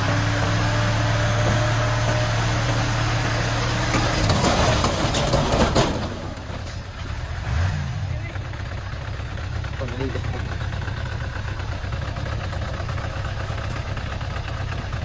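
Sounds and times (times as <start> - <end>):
diesel engine running: 0.0 - 15.0
soil and brick sliding out: 3.7 - 6.8.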